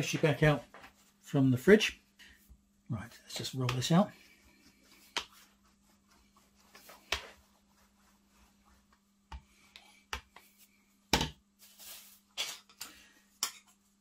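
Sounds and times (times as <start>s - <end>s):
rolling pin working pastry: 3.2s - 10.7s.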